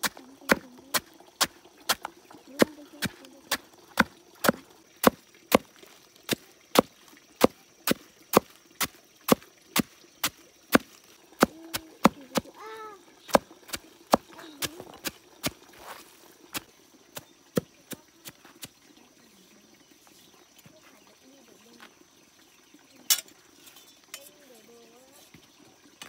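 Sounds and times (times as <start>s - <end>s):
blade chopping wood: 0.0s - 0.7s, 1.4s - 5.7s, 6.3s - 12.5s, 13.3s - 15.6s.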